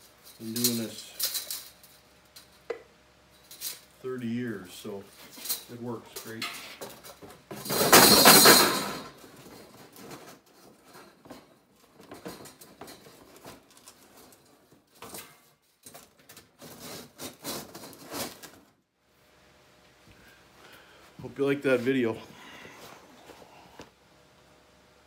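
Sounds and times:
steel blades rattling and clinking: 0.2 - 2.6, 5.1 - 9.9.

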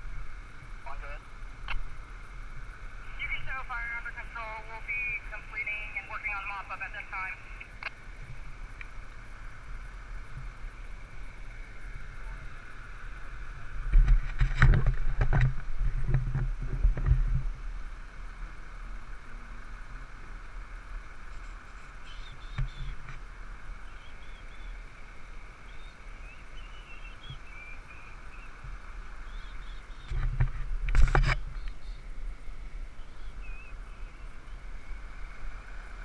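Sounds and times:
faint outdoor hum: 0.0 - 36.0
wind buffeting microphone: 13.6 - 18.0
small bird chirps: 21.8 - 23.0, 23.8 - 24.8, 25.7 - 28.6, 29.2 - 30.2, 33.0 - 34.6.

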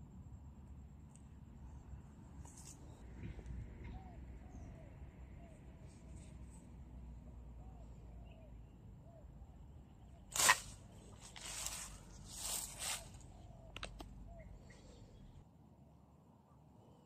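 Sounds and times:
net swishing: 10.3 - 13.2
rustling of net and leaves: 10.3 - 13.4.

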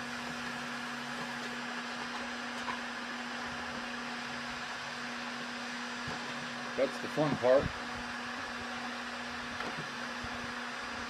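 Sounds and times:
heat gun air whoosh and hum: 2.9 - 11.0.

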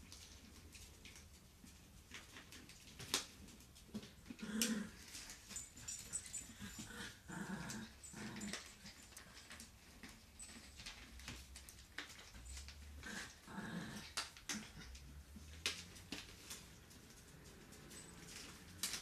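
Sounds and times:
puppies growling: 3.9 - 11.1, 12.0 - 16.1.

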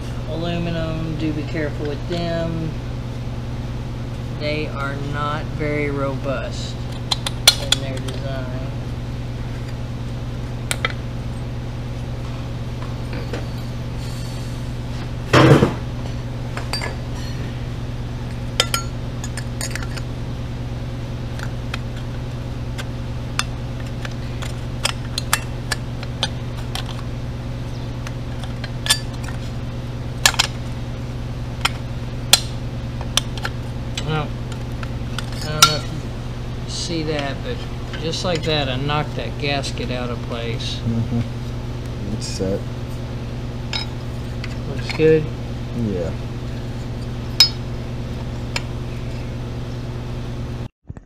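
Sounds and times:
steady low hum: 0.0 - 50.7.

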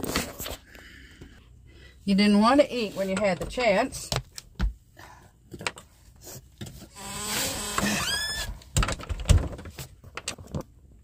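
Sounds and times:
door creaking on hinges: 7.0 - 9.6.

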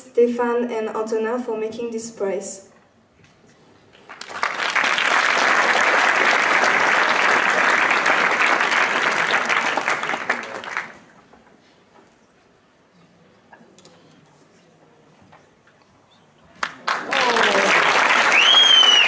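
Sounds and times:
audience applauding: 4.0 - 11.2, 16.6 - 19.0.

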